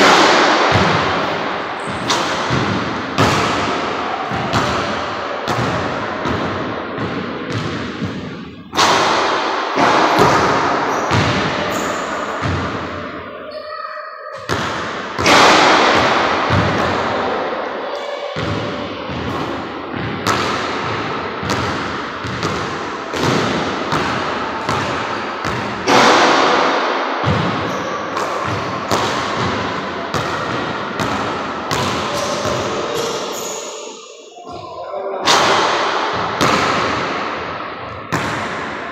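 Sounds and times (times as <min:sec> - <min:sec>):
basketball hitting backboard and rim: 0:00.0 - 0:13.1, 0:14.3 - 0:17.4, 0:18.4 - 0:33.6, 0:35.2 - 0:38.9
basketball bouncing on hardwood floor: 0:05.5 - 0:08.3, 0:12.4 - 0:12.8, 0:20.0 - 0:25.7.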